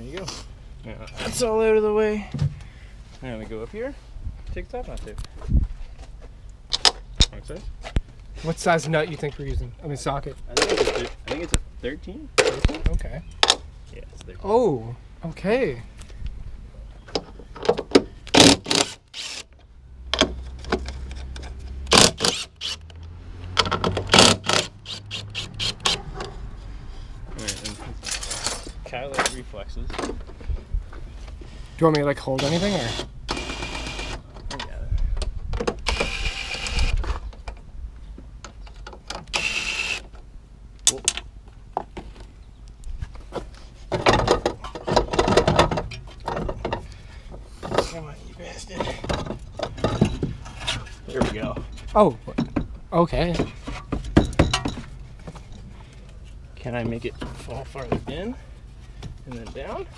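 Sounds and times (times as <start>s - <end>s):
metal clunks and rattles: 10.5s - 11.6s, 17.0s - 18.7s, 23.5s - 24.6s, 27.4s - 30.7s, 43.9s - 48.0s, 48.7s - 55.7s.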